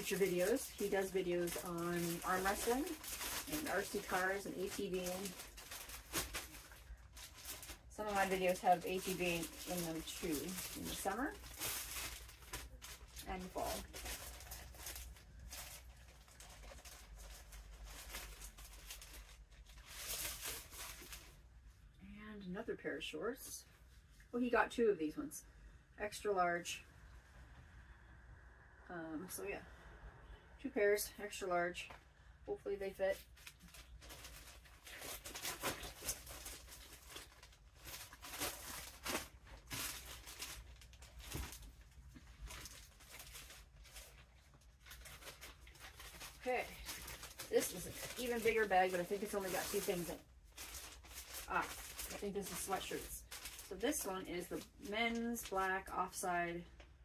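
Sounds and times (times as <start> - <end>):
plastic bag rustling: 0.0 - 21.4, 33.0 - 56.2
low steady hum: 0.0 - 57.0.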